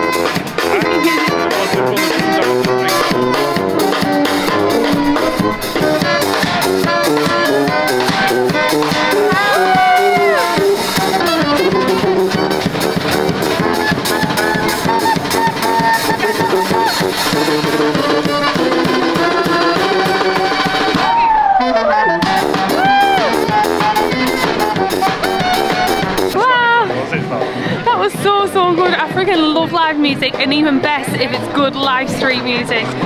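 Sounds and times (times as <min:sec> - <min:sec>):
saxophones: 0:00.0 - 0:26.4
drum kit beat: 0:00.0 - 0:33.0.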